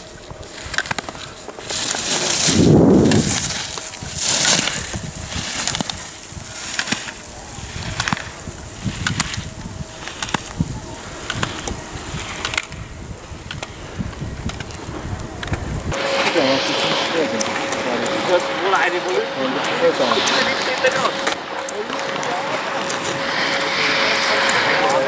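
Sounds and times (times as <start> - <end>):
skis scraping on hard snow: 0.0 - 12.8, 13.4 - 25.0
skis knocking gate poles: 0.5 - 10.6, 11.2 - 12.8.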